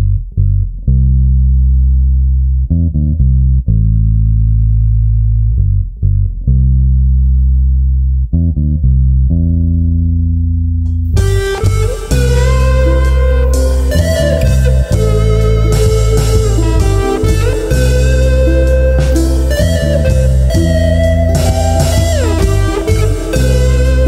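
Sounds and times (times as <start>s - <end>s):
low guitar and bass notes: 0.0s - 24.0s.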